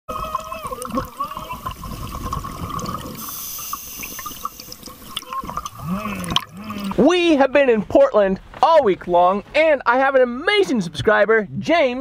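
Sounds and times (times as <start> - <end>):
exhaled bubbles underwater: 0.1 - 7.0
regulator inhalation hiss: 3.2 - 5.2.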